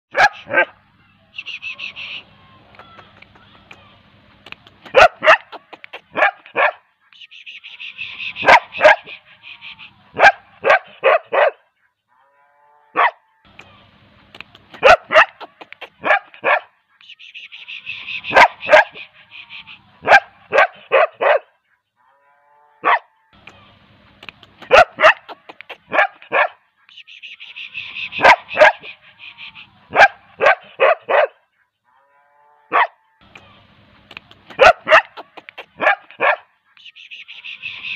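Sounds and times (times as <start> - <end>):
dog barking: 0.1 - 0.8, 4.9 - 6.9, 8.4 - 9.2, 10.2 - 11.7, 13.0 - 13.2, 14.8 - 16.8, 18.2 - 19.1, 20.0 - 21.6, 22.8 - 23.1, 24.6 - 26.6, 28.1 - 29.0, 29.9 - 31.5, 32.7 - 33.0, 34.5 - 36.5.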